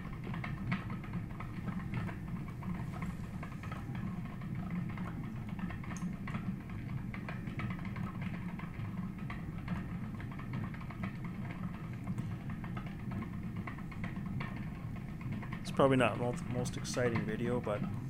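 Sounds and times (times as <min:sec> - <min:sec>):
spinning wheel generator whirring: 0:00.0 - 0:18.0.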